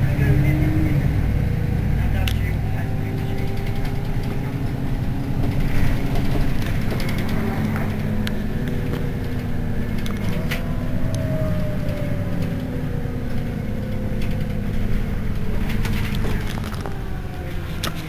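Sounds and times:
bus engine idling: 0.0s - 18.0s.

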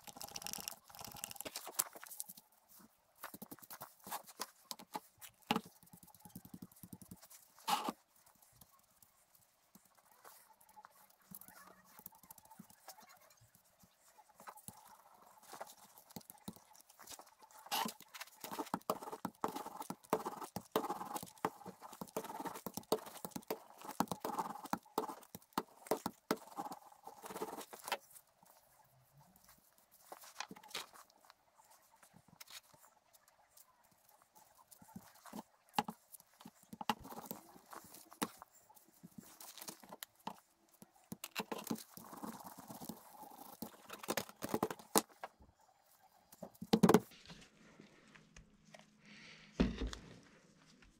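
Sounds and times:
glue brush dabbing: 3.2s - 28.7s.

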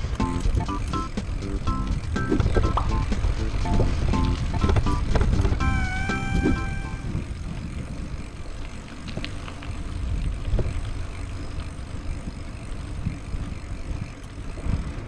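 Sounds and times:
wind buffeting microphone: 0.0s - 15.0s
light clicks from bike: 7.3s - 15.0s.

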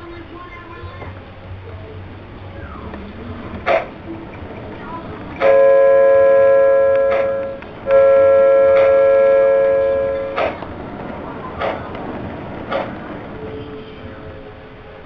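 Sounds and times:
model train electronic horn: 5.4s - 10.6s.

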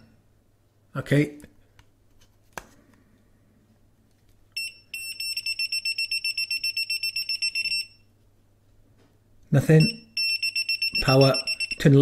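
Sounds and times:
voltage tester beeping: 4.6s - 8.0s, 9.8s - 12.0s.

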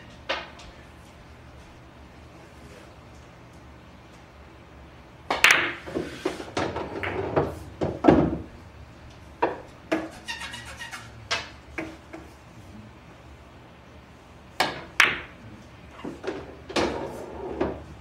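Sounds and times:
pool balls clacking: 0.0s - 1.2s, 5.2s - 12.4s, 14.6s - 18.0s.

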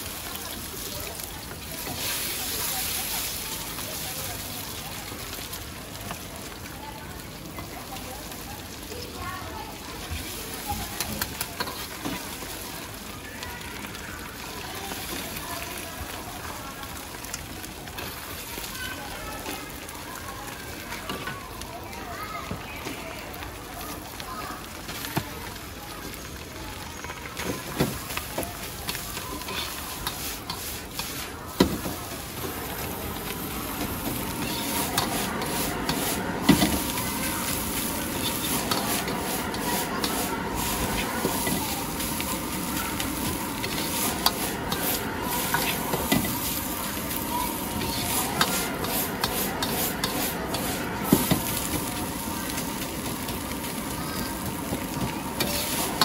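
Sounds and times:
rice sizzling in a wok: 0.0s - 56.0s
metal ladle scraping wok: 32.8s - 51.8s.

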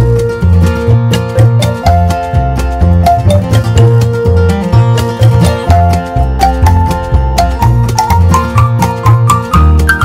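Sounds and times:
background music with quick melody: 0.0s - 10.0s.

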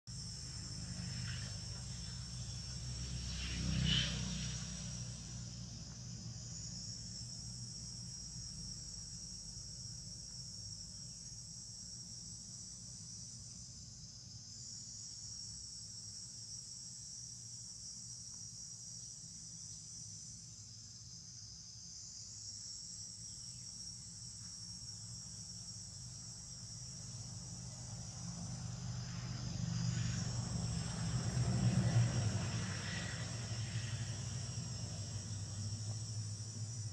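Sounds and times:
distant road traffic rumble: 0.1s - 9.4s, 26.4s - 36.9s
high-pitched insect chorus: 0.1s - 36.9s.

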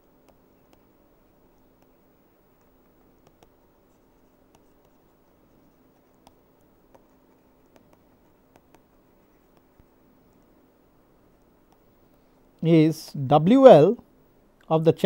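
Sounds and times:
faint steady hum: 0.0s - 15.0s
stylus tapping on pen tablet: 0.2s - 0.9s, 1.8s - 10.5s, 11.4s - 11.9s.

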